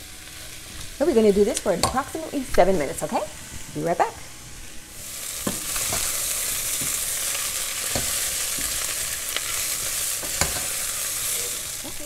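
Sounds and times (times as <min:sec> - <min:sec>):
vegetables sizzling in a pan: 0:00.0 - 0:12.0
spatula scraping a pan: 0:05.2 - 0:11.7.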